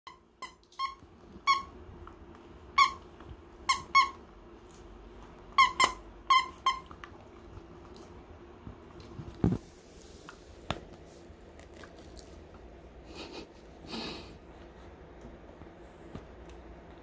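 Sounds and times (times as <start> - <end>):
dog toy squeaking: 0.1 - 1.7, 2.8 - 3.0, 3.7 - 4.2, 5.6 - 6.8.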